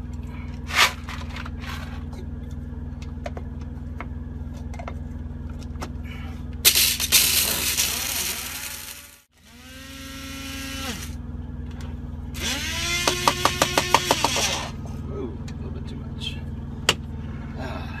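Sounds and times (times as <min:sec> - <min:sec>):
electric coffee grinder grinding: 0:06.7 - 0:11.2, 0:12.4 - 0:14.8.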